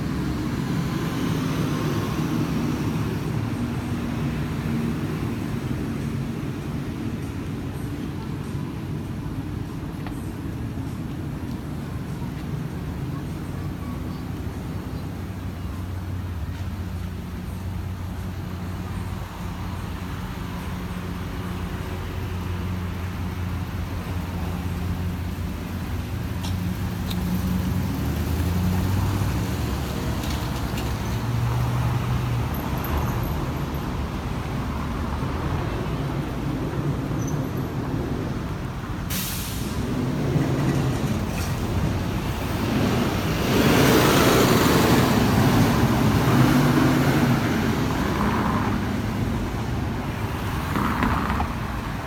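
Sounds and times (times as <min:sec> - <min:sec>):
short hiss: 0:39.1 - 0:39.8.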